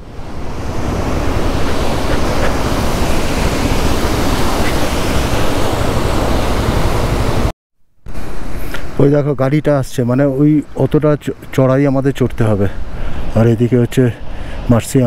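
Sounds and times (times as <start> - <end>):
waterfall rushing: 0.0 - 7.5.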